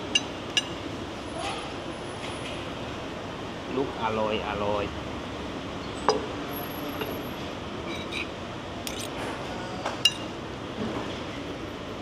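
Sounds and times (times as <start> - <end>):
cutlery clinking on a plate: 10.0 - 10.3.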